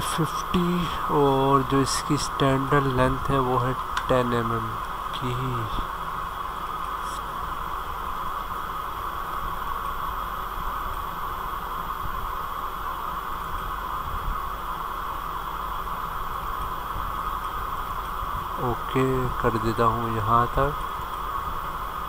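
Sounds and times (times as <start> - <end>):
background hiss: 0.0 - 22.0
faint low hum: 0.0 - 22.0.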